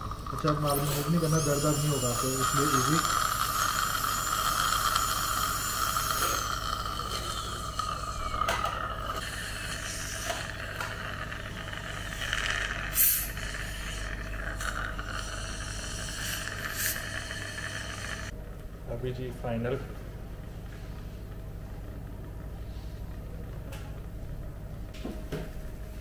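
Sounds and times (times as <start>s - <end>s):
dental drill whining: 0.0s - 18.3s
steady low hum: 0.0s - 26.0s
short hissing bursts: 12.9s - 18.3s.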